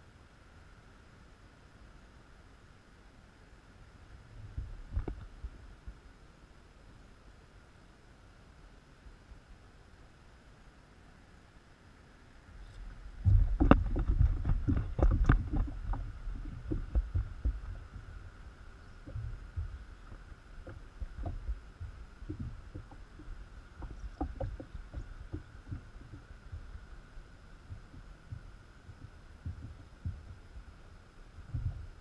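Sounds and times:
low thumps: 13.0s - 30.8s, 31.4s - 32.0s.

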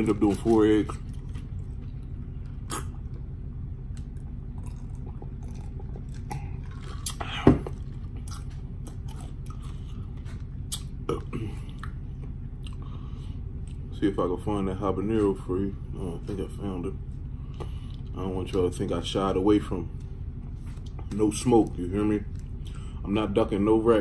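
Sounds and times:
steady low hum: 0.0s - 24.0s
person chewing: 0.3s - 3.3s, 3.9s - 13.0s.

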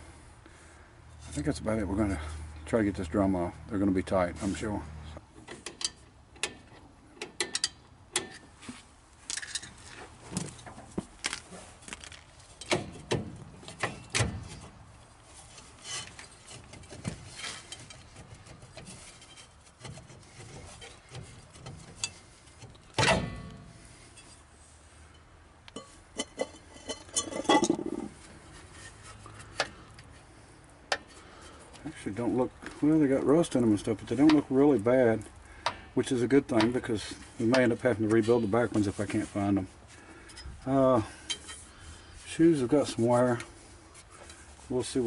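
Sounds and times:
metallic clinks and scraping: 9.3s - 14.7s, 15.4s - 24.4s, 25.0s - 30.1s, 40.2s - 44.6s.

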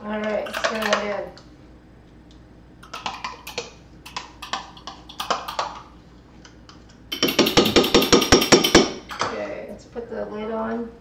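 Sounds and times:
rapid spoon knocks: 7.1s - 9.0s.

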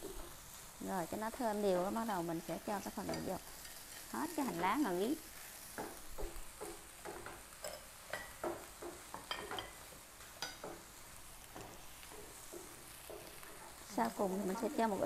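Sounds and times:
faint sizzle: 0.0s - 15.0s
wooden spatula scraping pan: 10.5s - 15.0s.

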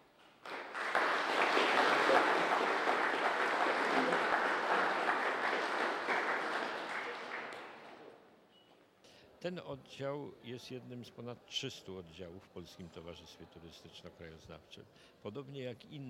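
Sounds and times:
audience applauding: 0.4s - 8.1s.

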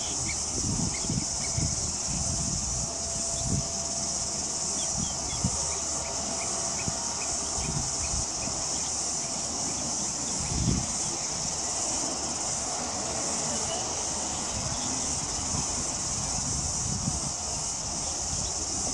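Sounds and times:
wind thumps on microphone: 0.0s - 4.1s, 10.4s - 11.6s, 14.6s - 18.9s
insect chorus drone: 0.0s - 18.9s.

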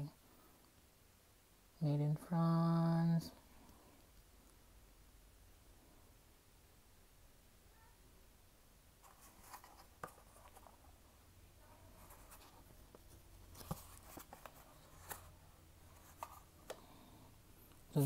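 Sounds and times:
faint scratchy rustling of packaging: 8.9s - 18.0s.

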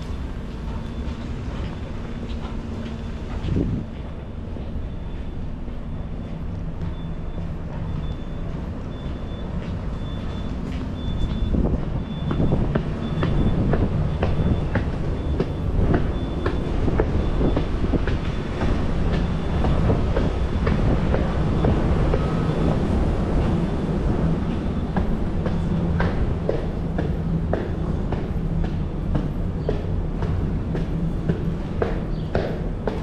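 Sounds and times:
footsteps on hard stairs: 11.0s - 22.3s, 24.4s - 33.0s.

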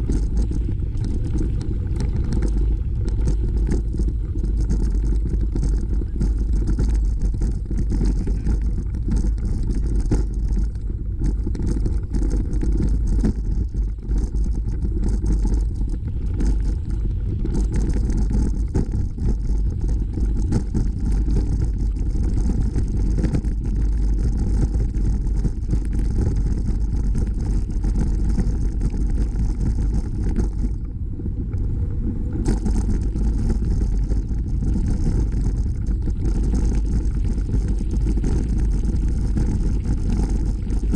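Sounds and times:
wind buffeting microphone: 0.0s - 40.9s
tyres rolling over gravel: 32.2s - 40.9s.

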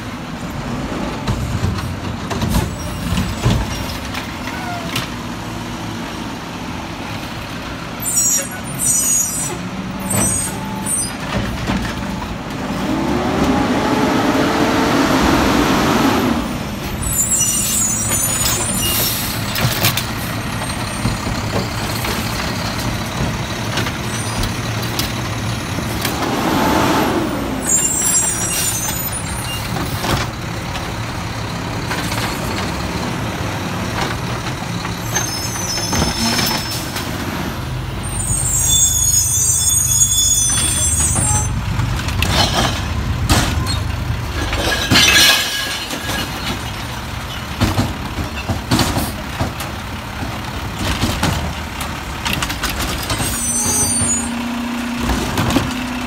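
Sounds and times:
diesel engine revving: 12.3s - 17.3s, 24.6s - 28.8s.

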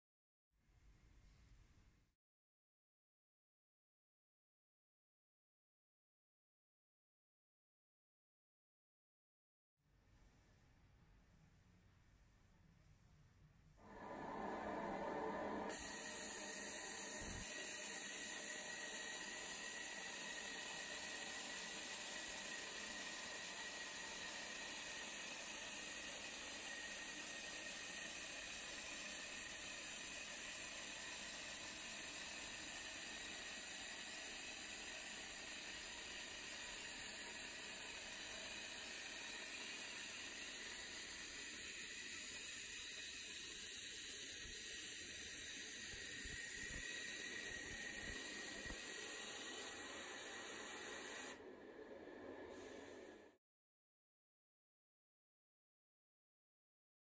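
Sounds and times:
welding machine hiss: 13.8s - 53.4s.

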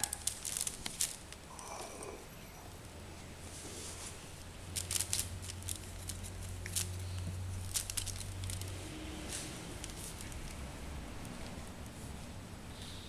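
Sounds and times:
claws clicking on wicker: 0.0s - 1.5s, 4.6s - 12.3s
low steady hum: 0.0s - 13.0s.

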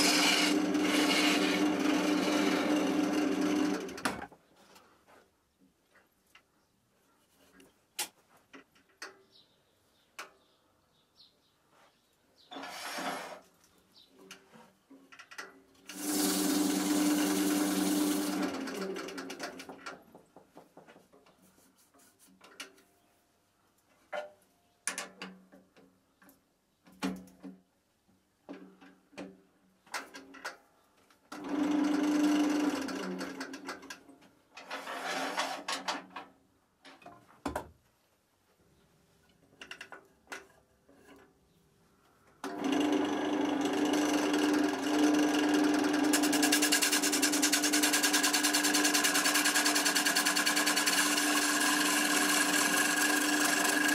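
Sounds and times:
gouge cutting wood: 0.0s - 3.7s, 15.9s - 18.7s, 46.0s - 53.9s
wood lathe motor humming: 0.0s - 4.1s, 15.9s - 19.4s, 42.5s - 53.9s.

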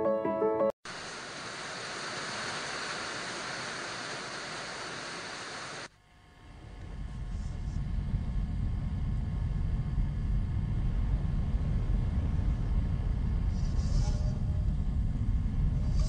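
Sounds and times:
music: 0.0s - 0.8s
tv static hiss: 0.9s - 6.8s
low rumble: 6.8s - 16.0s.

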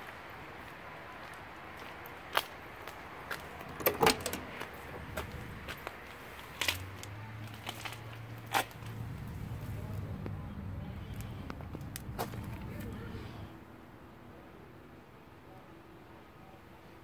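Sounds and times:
car door latch clicks and clunks: 3.6s - 4.7s.

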